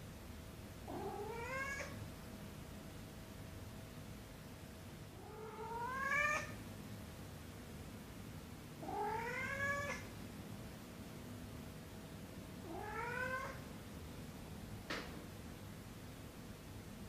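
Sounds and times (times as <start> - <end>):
cat meowing: 0.9 - 2.0, 5.2 - 6.6, 8.8 - 10.1, 12.6 - 13.6.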